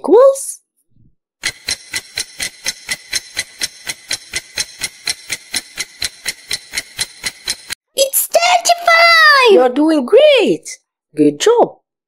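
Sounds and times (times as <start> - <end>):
fast timer ticking: 1.4 - 7.8.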